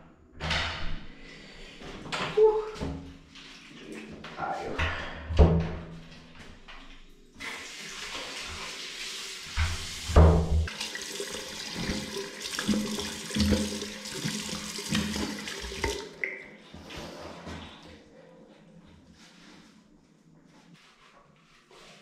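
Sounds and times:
splashing while washing face: 0:07.4 - 0:16.3
water running from tap: 0:07.4 - 0:16.4.

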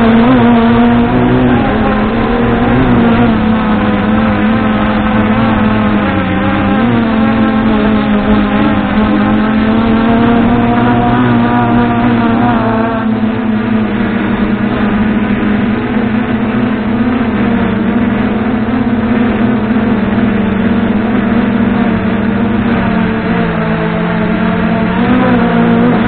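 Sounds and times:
drone motors whining: 0:00.0 - 0:26.0.

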